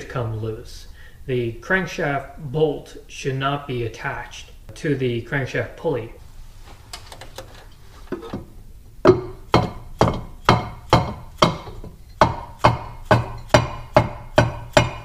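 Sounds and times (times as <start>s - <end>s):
mallet striking metal pulley: 9.0s - 15.0s.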